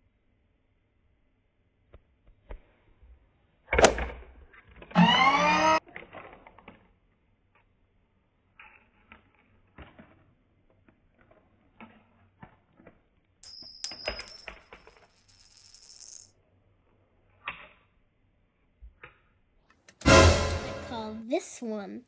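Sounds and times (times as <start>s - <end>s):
rattle: 13.4s - 16.3s.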